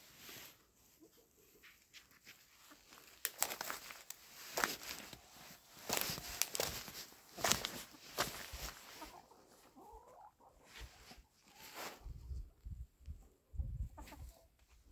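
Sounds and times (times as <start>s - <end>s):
footsteps crunching on snow: 1.6s - 9.2s.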